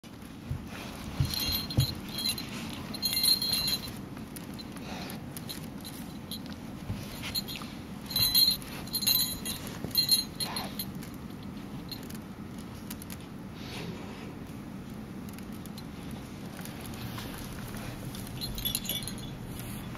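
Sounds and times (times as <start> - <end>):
blankets rustling: 0.1 - 11.2
dull thumps: 0.4 - 3.8
small jingle bell jingling: 1.0 - 12.2, 16.8 - 19.9.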